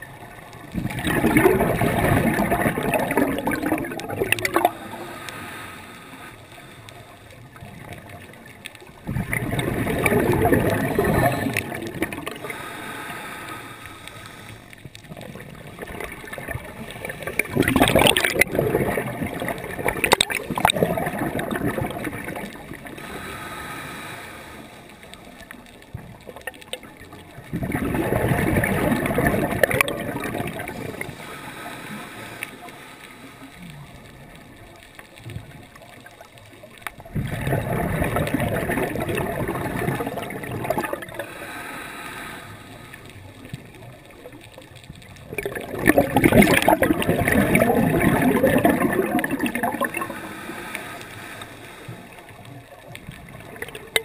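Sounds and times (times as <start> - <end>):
bubbles gurgling underwater: 0.0 - 5.3, 7.4 - 12.7, 14.9 - 23.3, 25.2 - 31.4, 33.6 - 41.5, 43.2 - 50.8, 52.0 - 54.0
low water hiss: 0.0 - 54.0.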